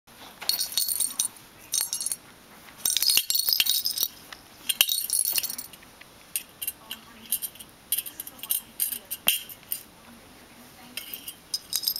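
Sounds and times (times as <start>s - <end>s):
small bell jingling: 0.5s - 2.2s, 2.8s - 5.8s, 11.1s - 11.9s.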